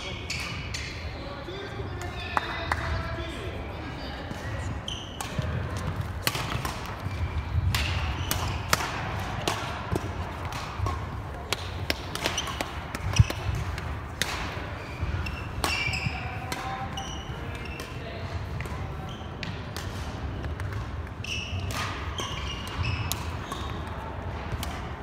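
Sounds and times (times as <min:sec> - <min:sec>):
sneakers squeaking on wooden court: 0:04.4 - 0:08.8, 0:12.1 - 0:18.0, 0:21.2 - 0:23.9
racket hitting shuttlecock: 0:05.1 - 0:18.8, 0:21.6 - 0:24.9.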